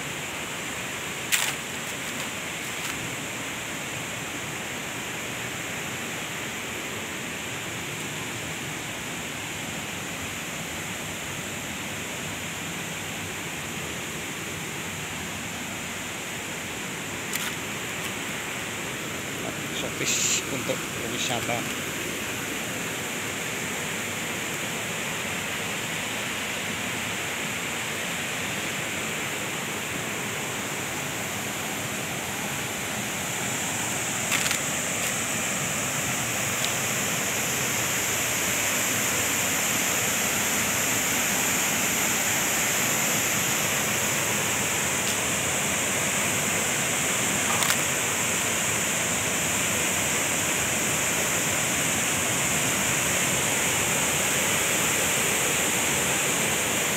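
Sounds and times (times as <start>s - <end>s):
waterfall pouring into a pool: 18.6s - 56.9s.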